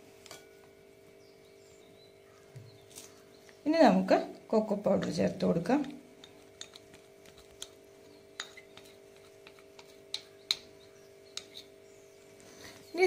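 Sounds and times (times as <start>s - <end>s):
faint steady hum: 0.0s - 13.0s
plastic spoon tapping on bowls: 5.8s - 11.6s.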